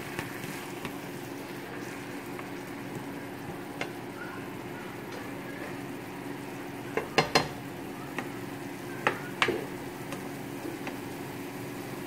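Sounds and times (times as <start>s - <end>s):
spoon stirring and scraping pan: 0.0s - 4.2s
sauce sizzling in a pan: 0.0s - 12.0s
spoon knocking against pan: 6.9s - 7.6s, 9.0s - 11.0s.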